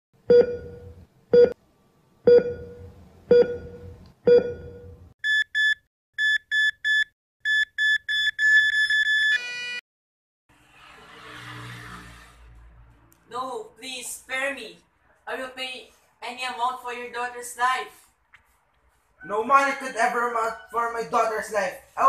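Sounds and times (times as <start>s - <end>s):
heart monitor beeps: 0.3s - 1.6s, 2.3s - 9.4s.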